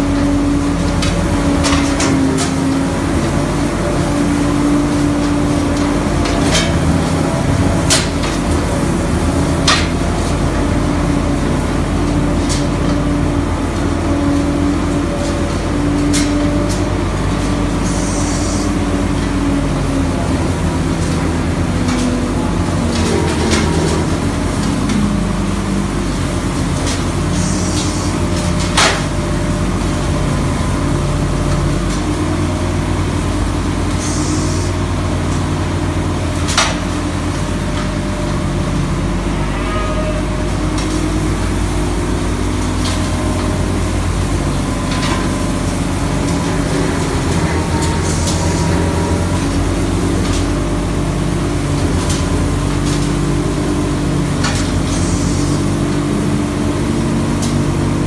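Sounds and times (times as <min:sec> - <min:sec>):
tractor engine running under load: 0:00.0 - 0:39.4, 0:40.3 - 0:58.0.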